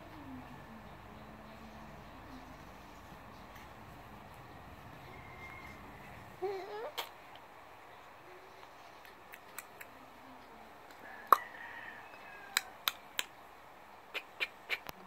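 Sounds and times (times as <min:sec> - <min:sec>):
baby cooing: 0:06.3 - 0:07.2.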